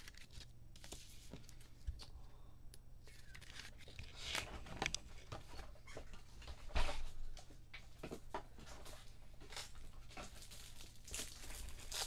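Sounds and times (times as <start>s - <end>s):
cards rustling and swishing: 0.0s - 2.2s, 3.0s - 5.6s.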